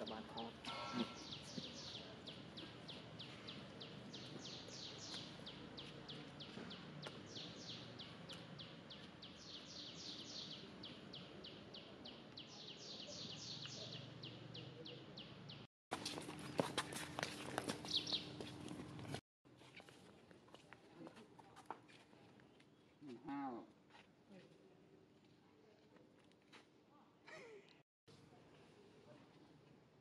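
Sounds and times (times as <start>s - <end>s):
bird chirping: 0.0s - 15.7s, 17.8s - 18.4s.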